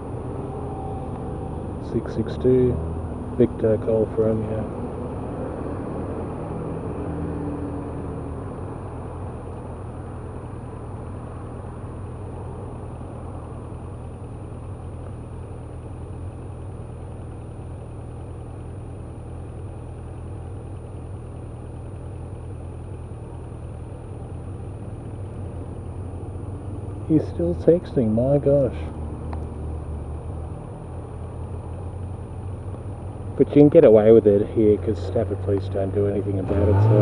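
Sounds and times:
vehicle driving past: 0.0s - 3.4s, 35.9s - 37.0s
motorcycle engine idling: 8.2s - 36.4s.

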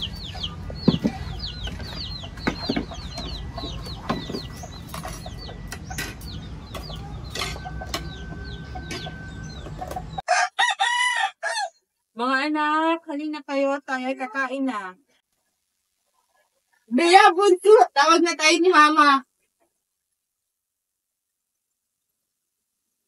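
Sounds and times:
chickens clucking: 0.0s - 10.2s
chicks peeping: 0.0s - 10.2s.

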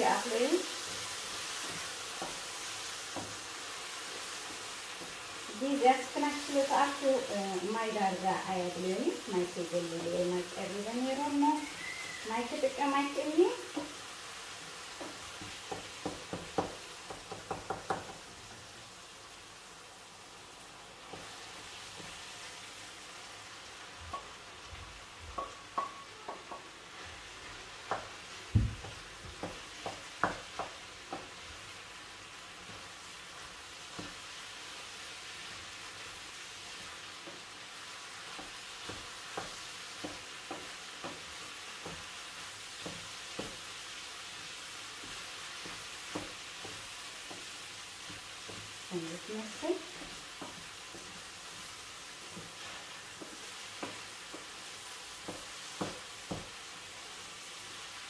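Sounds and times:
mushrooms sizzling in frying pan: 0.0s - 58.0s
wooden spoon knocking on pan: 0.2s - 3.5s, 12.5s - 14.0s, 14.9s - 18.3s, 24.0s - 26.8s, 27.8s - 31.6s, 33.9s - 34.2s, 36.8s - 37.6s, 38.2s - 43.7s, 44.9s - 56.6s.

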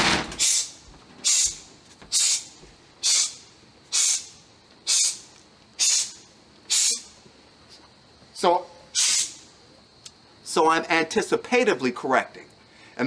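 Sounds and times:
person hissing: 0.4s - 7.2s, 8.9s - 9.5s.

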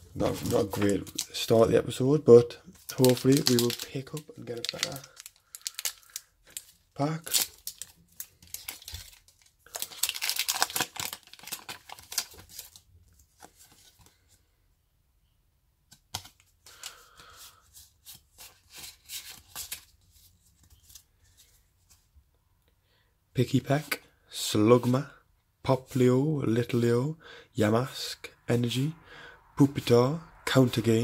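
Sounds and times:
cards shuffling in hands: 2.8s - 14.2s, 15.9s - 22.0s
foil wrapper tearing: 2.9s - 12.8s.

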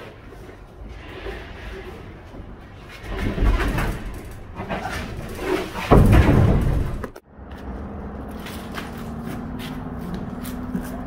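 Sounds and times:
clattering knocks: 3.0s - 7.2s
heavy slam: 3.1s - 7.2s.

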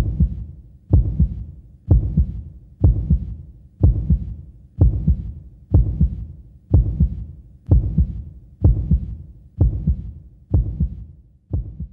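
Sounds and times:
heartbeat thumps: 0.0s - 11.9s.

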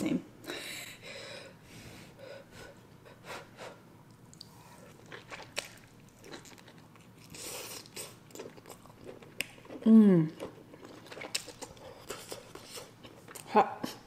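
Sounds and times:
chewing mouth sounds: 4.2s - 13.5s.

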